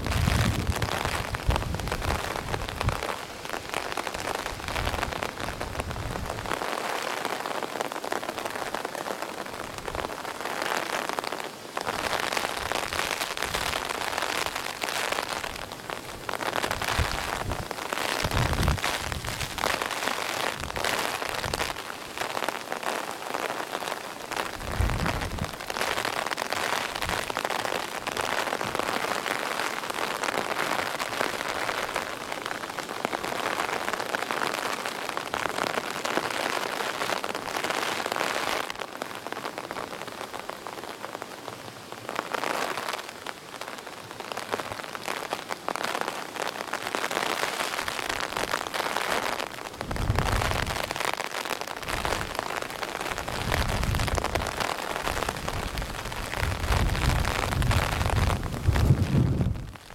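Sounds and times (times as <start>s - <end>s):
wind gusts on microphone: 0.0s - 6.6s, 15.5s - 19.8s, 24.5s - 25.8s, 49.8s - 51.0s, 53.1s - 59.9s
heavy rain pouring: 0.0s - 59.9s.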